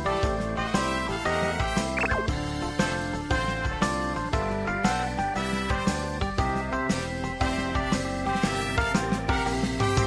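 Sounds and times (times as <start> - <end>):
upbeat tune with plucked guitar: 1.6 - 3.0.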